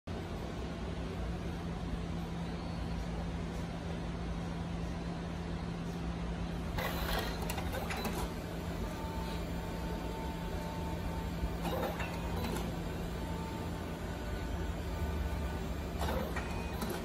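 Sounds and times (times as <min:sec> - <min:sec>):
printer whirring and clatter: 0:00.2 - 0:17.0
printer motor whine: 0:06.4 - 0:17.0.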